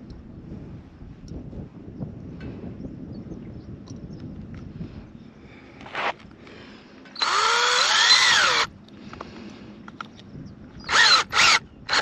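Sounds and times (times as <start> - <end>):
cordless drill driving screws: 7.2 - 8.7, 10.9 - 12.0.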